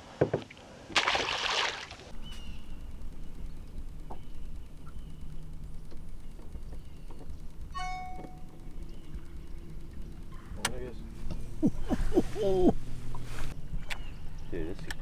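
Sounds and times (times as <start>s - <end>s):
fish splashing into water: 0.9s - 2.1s
low steady rumble: 2.1s - 15.0s.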